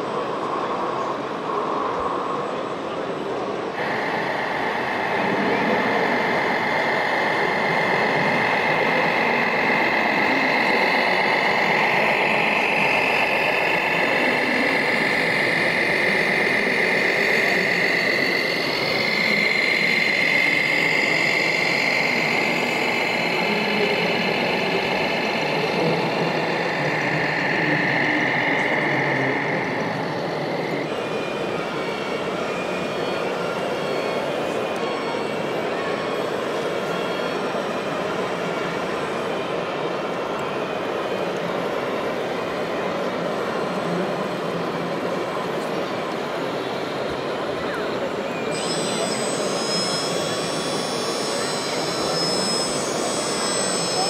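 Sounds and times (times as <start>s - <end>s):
high wavering whine: 0.0s - 54.0s
simulated truck engine noise: 0.0s - 54.0s
model truck gear whine: 46.8s - 54.0s.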